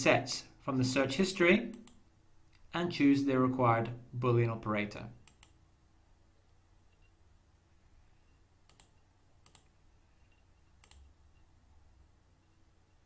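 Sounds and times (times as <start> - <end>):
computer mouse clicks: 1.7 - 2.7, 5.2 - 5.6, 8.6 - 11.4.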